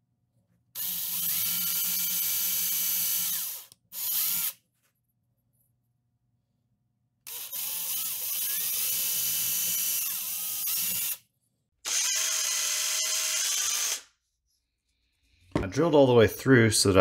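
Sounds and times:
power drill boring through wood: 0.8s - 4.6s, 7.3s - 11.2s, 11.8s - 14.1s.

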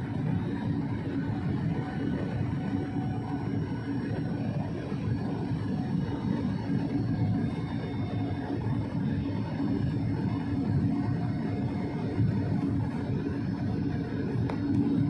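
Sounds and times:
airliner engine and airflow drone: 0.0s - 15.0s.

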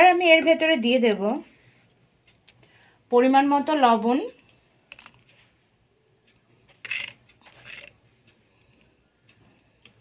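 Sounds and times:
spoon scraping: 6.7s - 8.0s.

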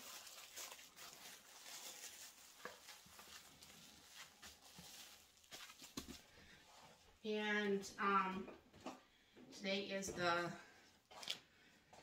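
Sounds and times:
plastic cling wrap crinkling: 0.0s - 6.4s
small crackles: 0.0s - 6.4s.

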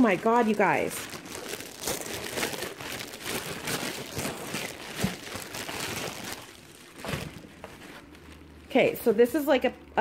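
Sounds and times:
plastic bags crinkling: 0.0s - 9.2s.

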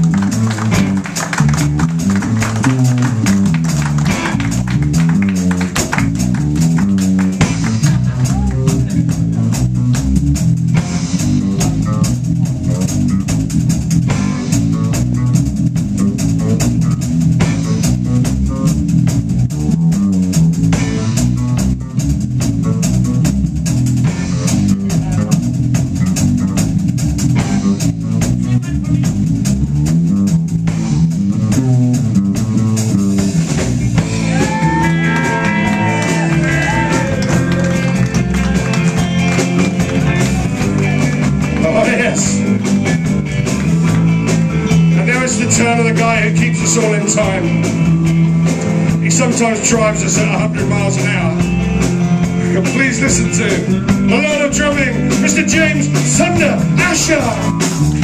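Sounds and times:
bending sliding guitar lead: 0.0s - 18.7s, 31.3s - 58.0s
electric guitar: 0.0s - 29.4s, 30.7s - 58.0s
drum kit: 0.0s - 58.0s
electric bass: 0.0s - 58.0s.

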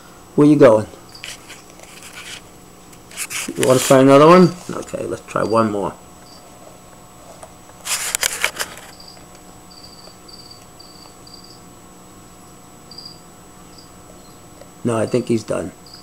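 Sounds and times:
faint steady hum: 0.0s - 16.0s
cricket chirping: 1.0s - 2.0s, 5.3s - 6.5s, 8.6s - 16.0s
crackly rustle of handling: 1.1s - 5.1s, 6.3s - 9.5s.

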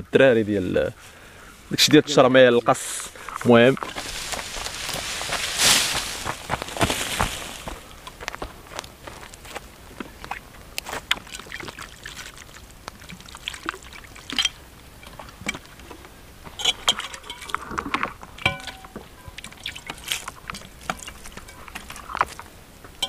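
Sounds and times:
plastic bottle crinkling: 3.2s - 7.9s.

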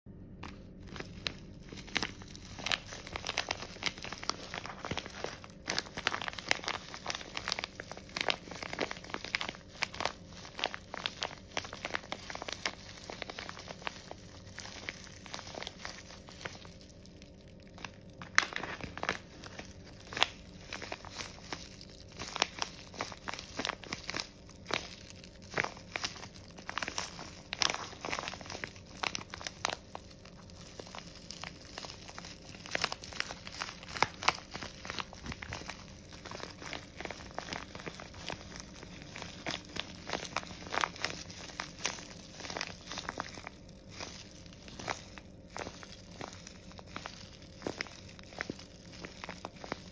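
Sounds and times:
plastic bag crinkling: 0.2s - 49.9s.

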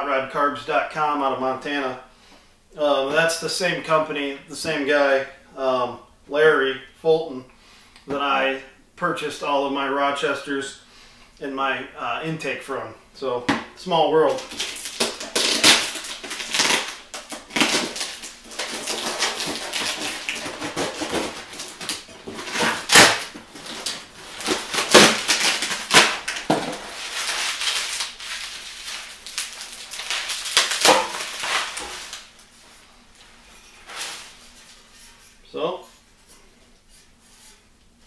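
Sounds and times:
bubble wrap crinkling and crackling: 14.2s - 35.1s.

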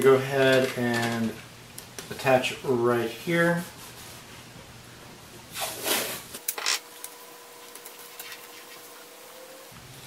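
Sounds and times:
rustling scrapes: 5.5s - 6.3s.

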